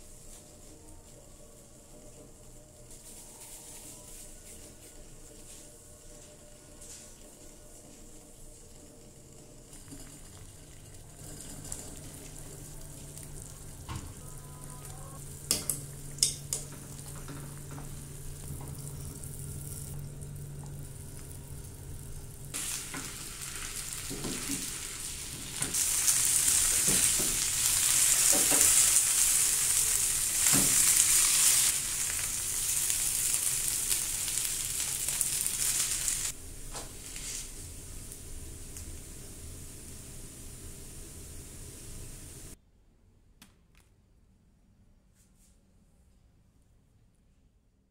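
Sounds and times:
dough sizzling in frying pan: 15.2s - 42.6s.

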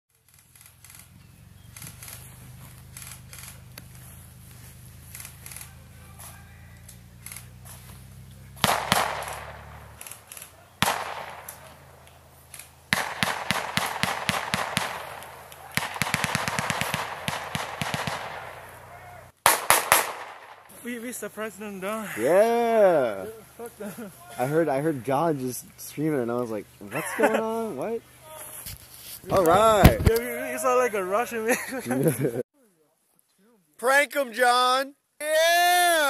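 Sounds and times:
airsoft guns firing: 8.5s - 20.7s.

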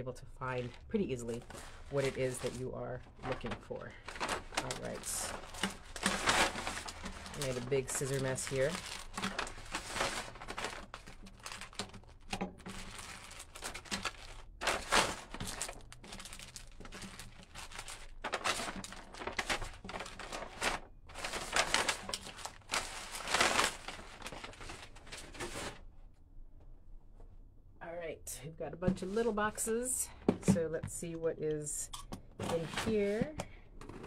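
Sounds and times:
plastic mailer envelope handled: 0.7s - 25.8s, 32.4s - 34.0s
packaging crinkling and rustling: 0.7s - 25.9s, 32.4s - 34.0s.

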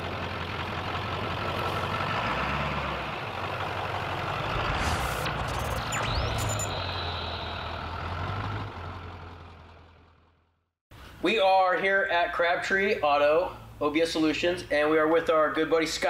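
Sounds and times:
pickup truck engine and exhaust: 0.0s - 10.6s.

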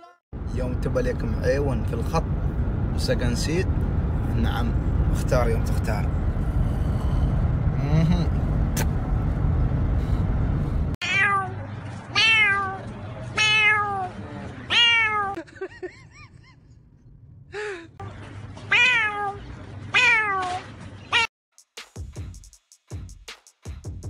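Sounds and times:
cat-like meows: 11.0s - 12.8s, 13.4s - 14.1s, 14.7s - 15.4s, 18.7s - 21.3s.

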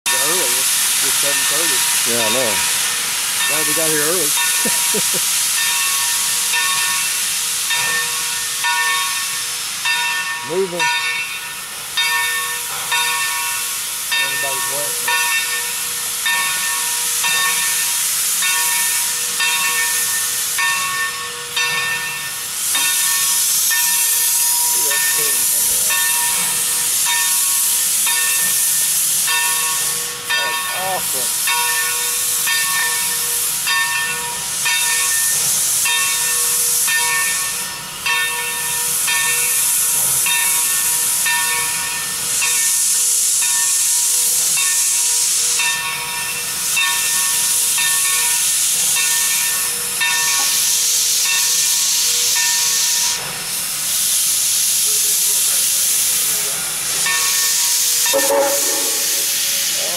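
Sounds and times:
locomotive bell ringing: 0.1s - 42.8s, 43.4s - 50.6s, 51.2s - 53.3s, 56.4s - 59.9s
steam hissing from locomotive: 0.1s - 59.9s.

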